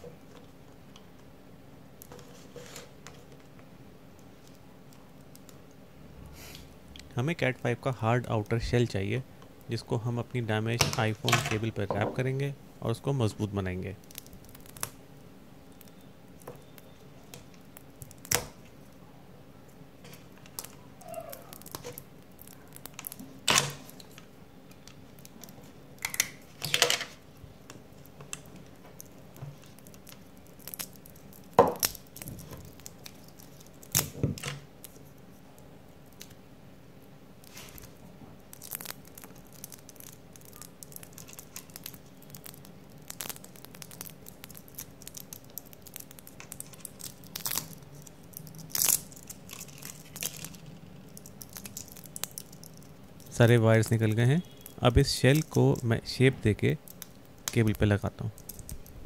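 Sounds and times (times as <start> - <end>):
wires rustling and clicking: 2.0 - 5.8, 13.8 - 19.0, 19.6 - 36.4, 37.0 - 59.0
wires scraping out of cable jacket: 37.4 - 55.8.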